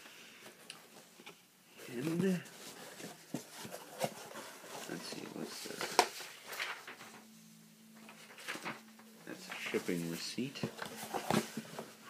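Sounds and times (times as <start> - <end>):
cardboard box rustling: 1.9 - 7.2, 8.1 - 12.0.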